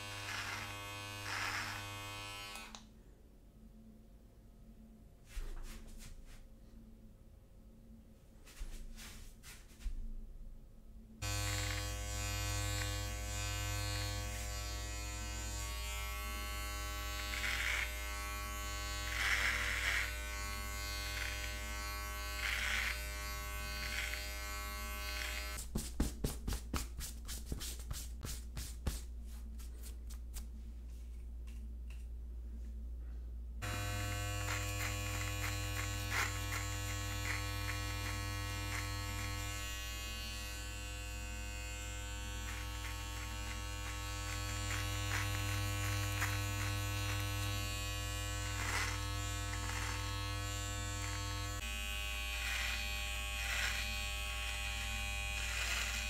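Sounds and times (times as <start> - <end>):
hair trimmer buzzing: 0.0 - 2.8, 11.2 - 25.6, 33.6 - 56.0
hand brushing a shirt: 25.6 - 31.2.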